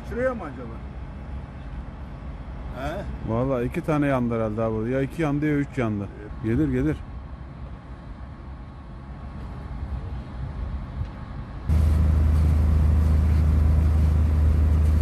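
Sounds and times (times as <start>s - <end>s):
loud low engine drone: 6.3s - 15.0s
low background rumble: 7.0s - 15.0s.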